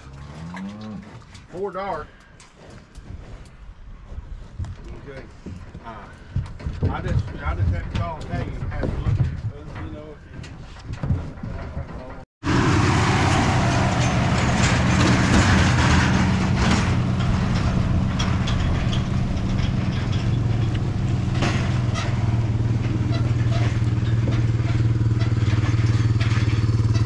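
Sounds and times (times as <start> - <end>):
vehicle engine running: 12.4 - 27.0
sharp clicks and rattles: 13.7 - 27.0.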